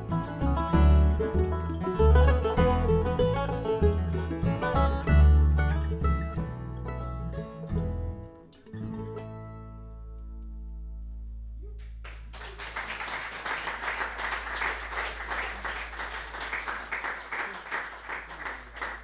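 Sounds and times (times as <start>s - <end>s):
plucked strings chord ringing: 0.0s - 11.0s
audience applause: 11.8s - 19.0s.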